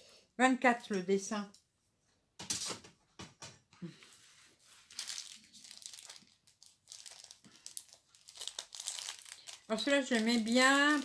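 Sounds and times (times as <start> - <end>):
plastic packaging crinkling: 4.6 - 11.0.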